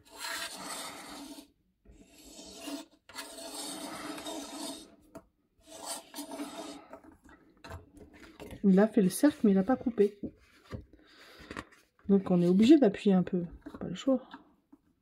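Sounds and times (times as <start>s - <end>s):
blade scraping over paper: 0.0s - 5.0s, 5.6s - 7.1s.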